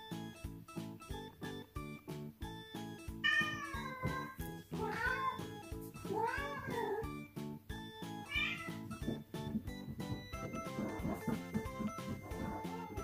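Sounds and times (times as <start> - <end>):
background music: 0.0 - 13.0
cat warbling meows: 3.2 - 5.4, 6.1 - 7.1, 8.3 - 8.8
cats meowing: 3.2 - 7.2, 8.2 - 9.2, 10.4 - 13.0.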